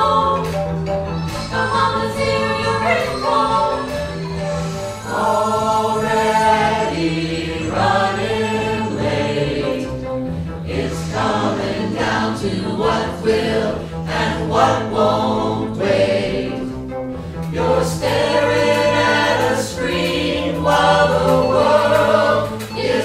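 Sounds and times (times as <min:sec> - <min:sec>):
choir singing in harmony: 0:00.0 - 0:23.0.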